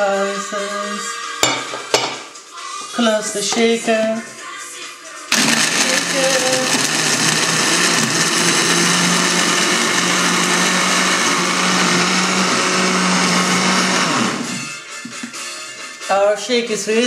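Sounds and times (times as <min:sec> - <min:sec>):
blender blending ice: 0:05.3 - 0:14.7.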